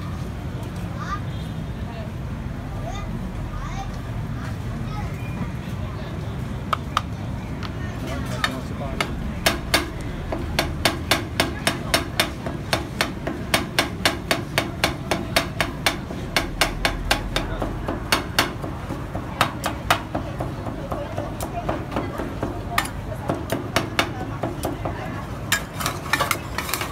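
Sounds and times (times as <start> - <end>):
metal spatulas clacking on steel: 8.4 - 26.9.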